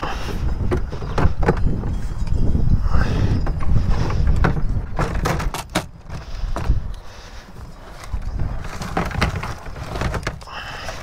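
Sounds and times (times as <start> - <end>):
plastic tank knocking and scraping: 0.3 - 1.9, 3.4 - 6.8, 8.4 - 11.0.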